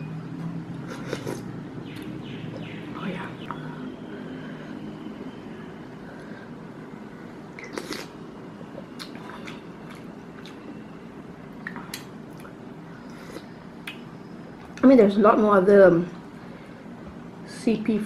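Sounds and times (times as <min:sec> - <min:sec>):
quiet chewing: 0:09.0 - 0:10.7.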